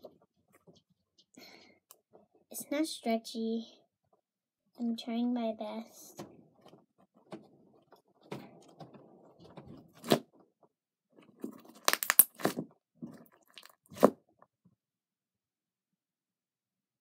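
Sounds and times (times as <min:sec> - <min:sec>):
slime squishing: 0:11.2 - 0:14.2
slime crackling air pops: 0:11.8 - 0:12.6.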